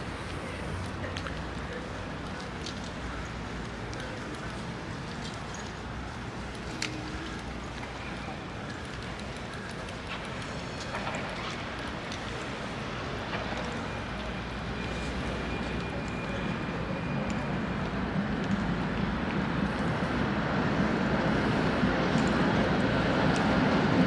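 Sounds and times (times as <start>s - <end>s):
street traffic: 0.0s - 24.0s.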